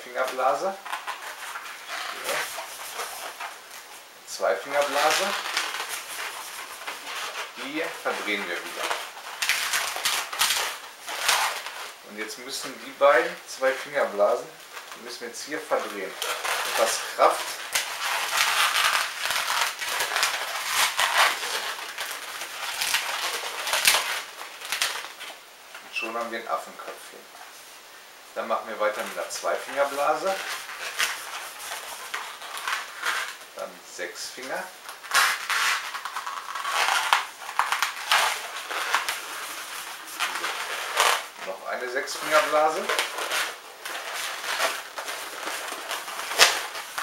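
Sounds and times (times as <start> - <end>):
balloon squeaking and creaking: 0.0 - 12.0, 15.7 - 27.0, 28.9 - 47.0.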